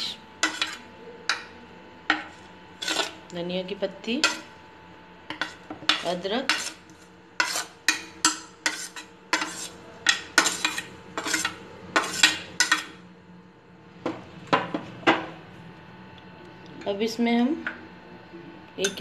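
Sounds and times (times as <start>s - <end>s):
spoon scraping and knocking: 0.4s - 0.8s, 2.1s - 3.2s, 5.3s - 6.8s, 7.4s - 12.9s.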